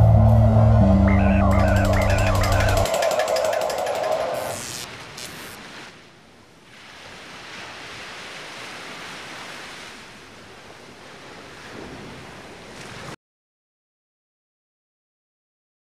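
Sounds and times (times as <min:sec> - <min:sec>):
sea waves washing: 0:00.0 - 0:13.2.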